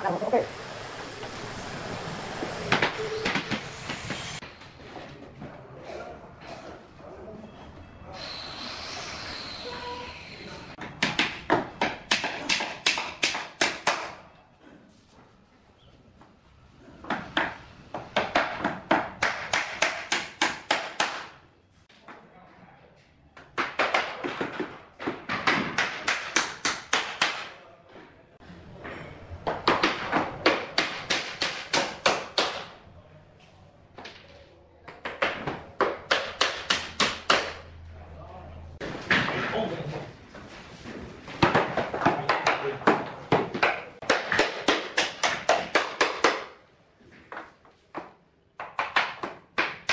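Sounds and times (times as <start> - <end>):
hammer striking nails: 17.1 - 21.3, 35.0 - 37.6, 41.4 - 46.6.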